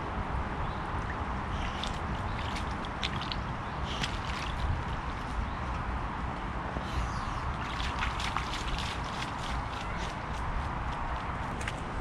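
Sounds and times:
low background noise: 0.0 - 12.0
dog splashing in puddle: 1.6 - 5.4, 7.5 - 10.3.

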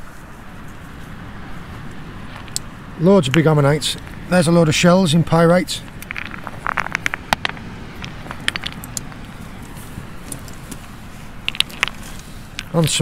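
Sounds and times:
steady background rush: 0.0 - 13.0
stones clicking together: 2.3 - 4.2, 5.8 - 13.0.

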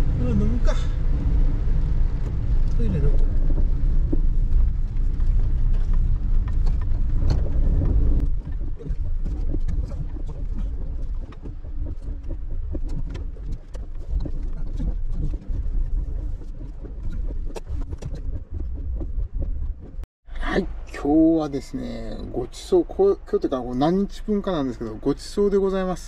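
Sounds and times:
car engine and tyres on wet road: 0.0 - 20.0.

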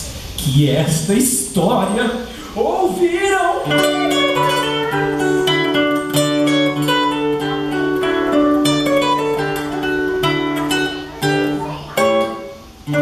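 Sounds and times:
acoustic guitar strummed chords: 3.5 - 13.0.

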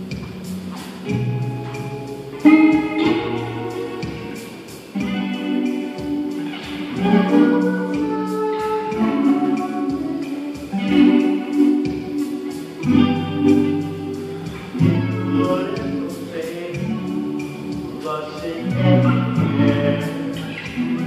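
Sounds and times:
acoustic guitar ballad: 0.0 - 21.0
man singing: 15.0 - 21.0.

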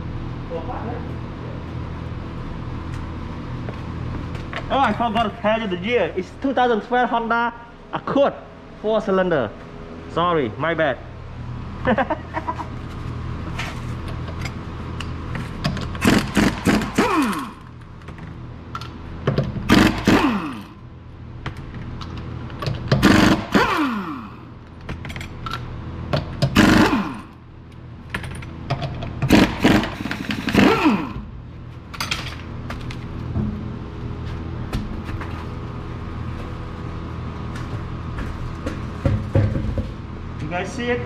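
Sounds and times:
air impact wrench bursts: 16.0 - 17.8, 19.6 - 20.8, 22.9 - 24.5, 26.5 - 27.4, 29.2 - 31.3.

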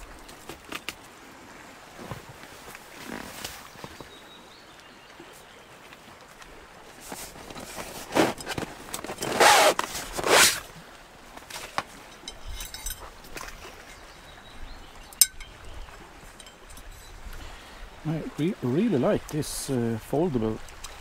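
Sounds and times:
rustling scrapes: 7.0 - 10.7
sharp metallic clink: 15.2 - 15.6.

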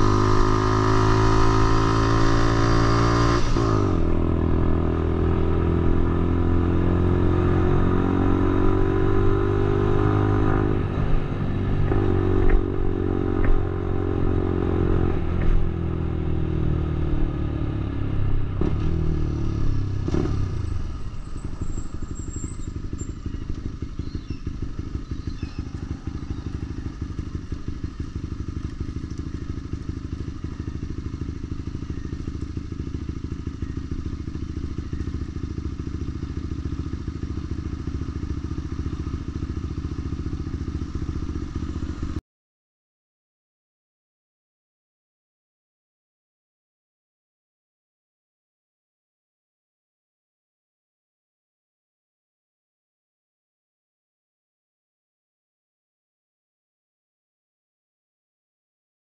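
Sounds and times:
motorbike engine slowing and idling: 3.6 - 42.2.

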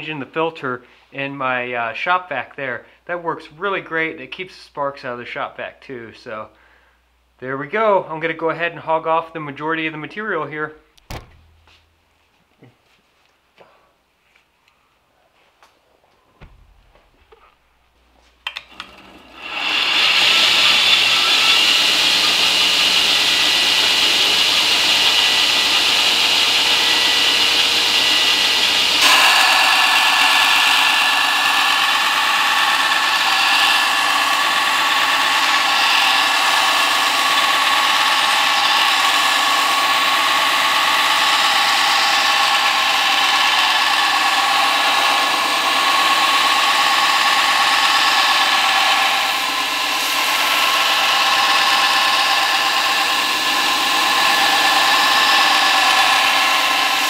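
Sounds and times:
belt grinder grinding steel: 18.5 - 57.0.

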